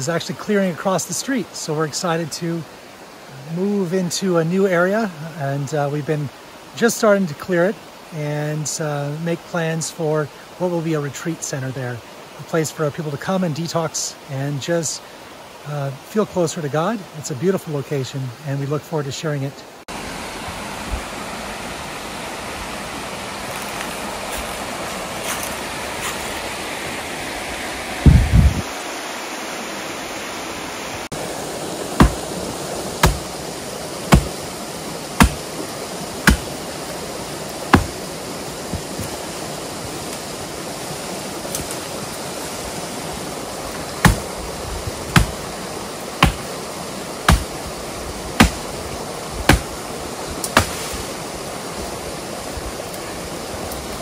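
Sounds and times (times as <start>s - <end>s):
steady rushing noise: 23.5s - 51.9s
sharp knocks: 32.0s - 32.2s, 33.0s - 33.3s, 34.1s - 34.4s, 35.2s - 35.4s, 36.2s - 36.5s, 37.7s - 38.0s, 44.0s - 44.2s, 45.1s - 45.4s, 46.2s - 46.4s, 47.3s - 47.5s, 48.4s - 48.6s, 49.5s - 49.7s
heavy low thump: 37.7s - 38.0s.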